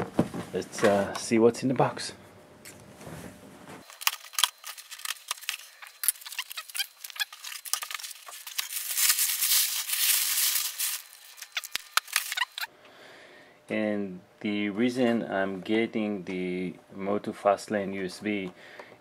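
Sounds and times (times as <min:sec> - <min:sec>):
packing paper crackling and rustling: 0:03.8 - 0:12.7.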